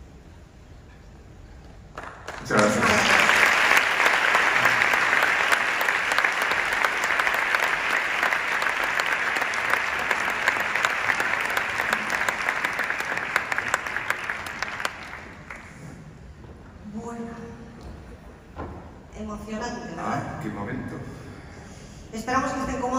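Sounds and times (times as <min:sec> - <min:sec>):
audience applause: 0:01.9 - 0:16.4.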